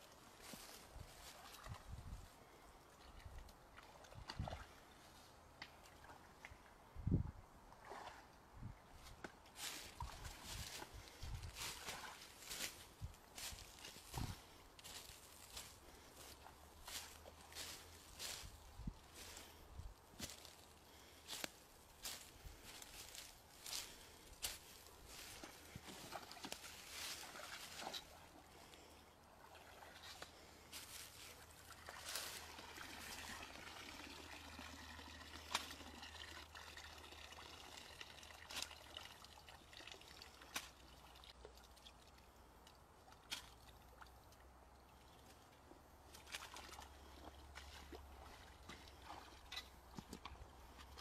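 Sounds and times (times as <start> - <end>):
small splashes: 7.7 - 8.3, 9.5 - 12.8, 24.4 - 42.2, 43.0 - 51.0
water trickling and dripping: 31.6 - 49.7.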